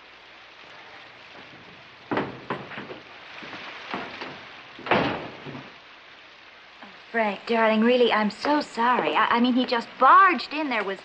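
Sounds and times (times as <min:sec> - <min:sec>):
steady background hiss: 0:00.0 - 0:11.0
door opening and shutting: 0:01.5 - 0:03.0, 0:03.9 - 0:05.8.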